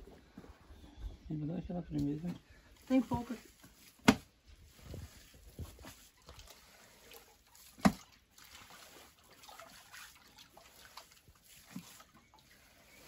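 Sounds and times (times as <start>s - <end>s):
wet pulp squishing: 2.8s - 13.0s.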